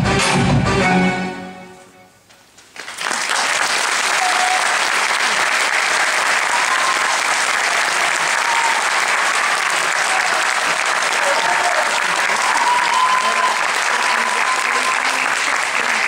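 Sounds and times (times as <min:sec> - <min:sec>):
audience applauding: 0:02.6 - 0:16.0
faint calls from audience: 0:11.2 - 0:16.0.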